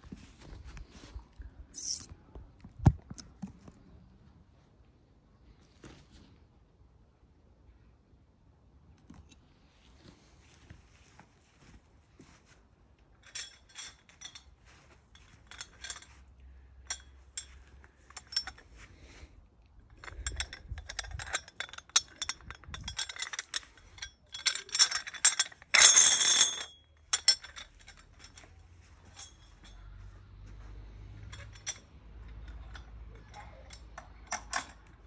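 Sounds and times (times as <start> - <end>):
metal hardware clinking and rattling: 13.2 - 35.0.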